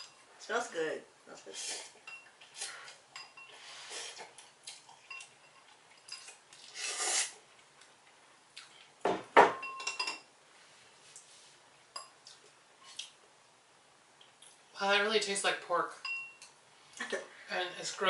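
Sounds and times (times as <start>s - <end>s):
slurping noodles and broth: 6.3s - 7.4s.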